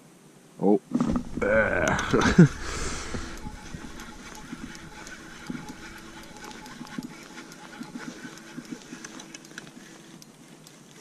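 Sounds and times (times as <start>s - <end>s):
fishing reel whirring and clicking: 1.2s - 11.0s.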